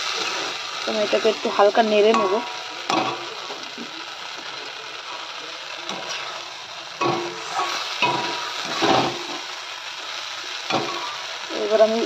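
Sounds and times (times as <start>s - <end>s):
vegetables sizzling in sauce: 0.0s - 12.0s
metal spatula scraping pan: 7.0s - 9.4s.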